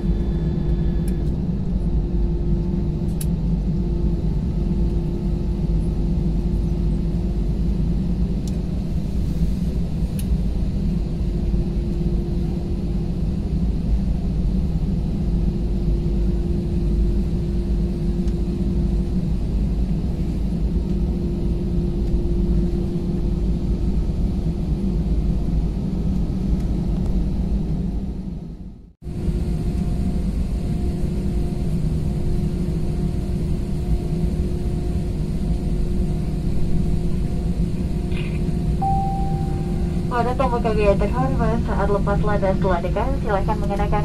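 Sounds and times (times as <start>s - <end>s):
jet engines rumbling in cabin: 0.0s - 44.0s
steady engine hum: 0.0s - 44.0s.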